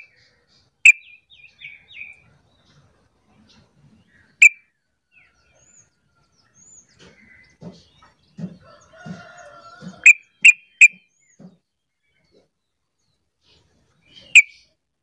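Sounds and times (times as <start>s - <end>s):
rooster crowing faintly: 8.5s - 10.2s.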